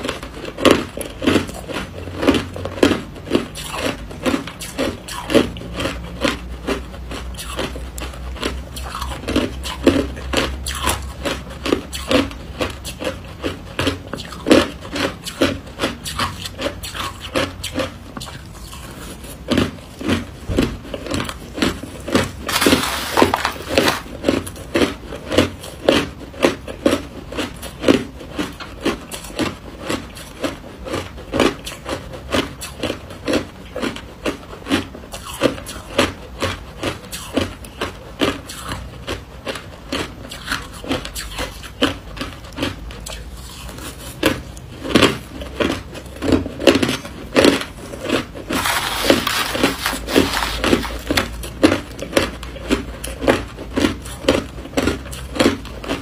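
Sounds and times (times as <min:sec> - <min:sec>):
crushed ice being chewed: 0:00.0 - 0:56.0
spoon scraping through ice: 0:21.8 - 0:24.7, 0:47.5 - 0:52.3.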